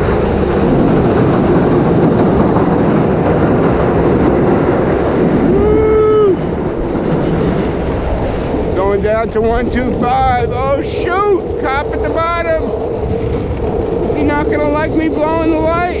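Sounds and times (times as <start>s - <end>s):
elevated train running overhead: 0.0s - 16.0s
skateboard wheels rolling on asphalt: 0.0s - 16.0s.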